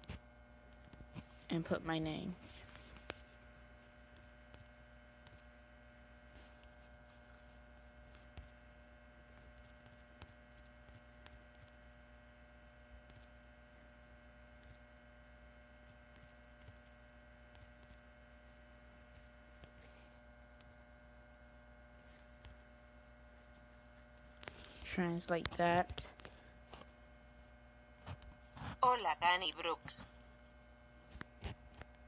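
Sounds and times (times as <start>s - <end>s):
steady electrical hum: 0.0s - 32.0s.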